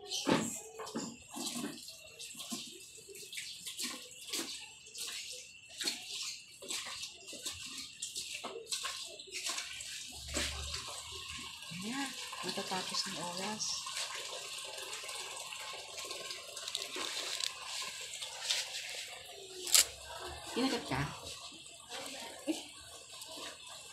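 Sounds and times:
guinea pigs crunching lettuce: 0:02.4 - 0:13.6, 0:14.6 - 0:23.9.

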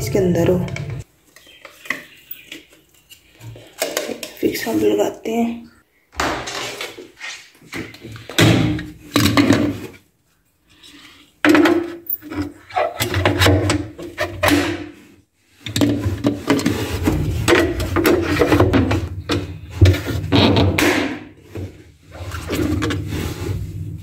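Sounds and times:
plastic scrapes and knocks: 0:11.4 - 0:24.0.

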